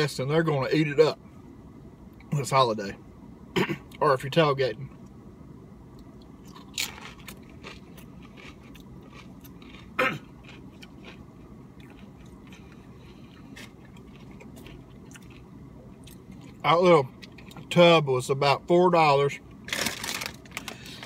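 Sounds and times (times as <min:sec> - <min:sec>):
chewing crackles: 0:06.5 - 0:11.2, 0:11.8 - 0:16.6
tortilla chip crunching: 0:06.5 - 0:11.2, 0:11.8 - 0:12.8, 0:13.4 - 0:16.6, 0:19.7 - 0:21.0.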